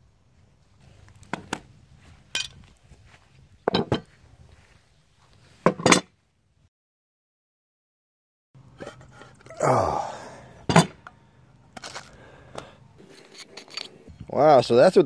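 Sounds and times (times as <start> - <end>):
metal tools clanking on table: 3.7 - 4.0.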